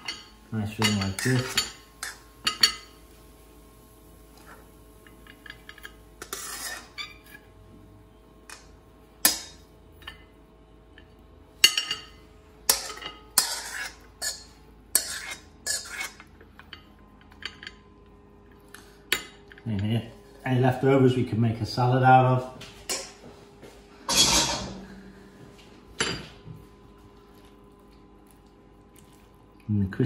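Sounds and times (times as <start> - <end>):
metal spoon scraping and tapping wok: 12.7 - 16.1.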